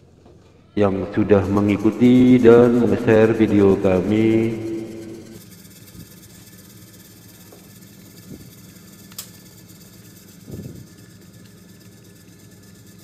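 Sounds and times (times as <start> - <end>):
washing machine humming: 0.8 - 13.0.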